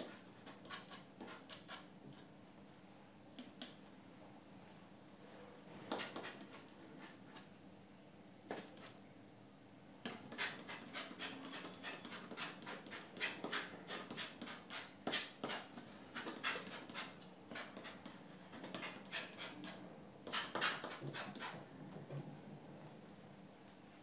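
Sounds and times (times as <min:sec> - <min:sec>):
palette knife scraping canvas: 0:00.0 - 0:01.8, 0:05.9 - 0:07.2, 0:10.1 - 0:21.6.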